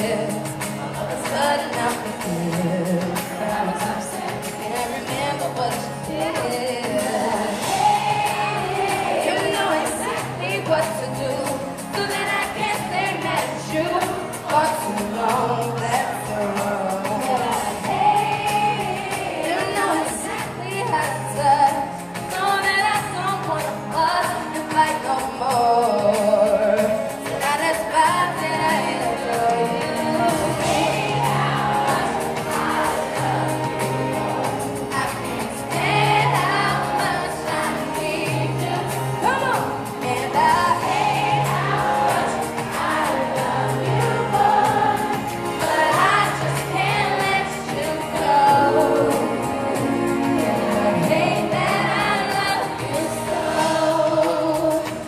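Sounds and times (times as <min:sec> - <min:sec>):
acoustic guitars: 0:00.0 - 0:55.0
woman singing pop song: 0:00.0 - 0:55.0.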